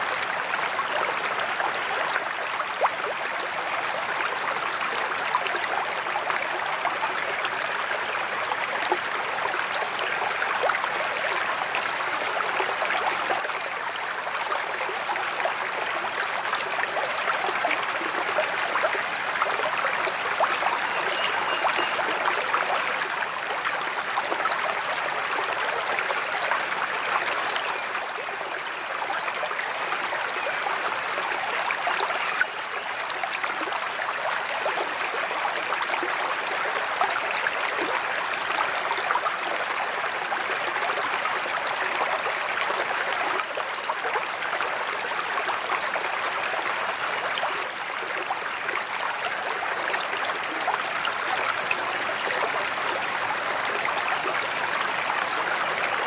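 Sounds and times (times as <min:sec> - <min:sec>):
water splashing into pond: 0:20.2 - 0:23.5.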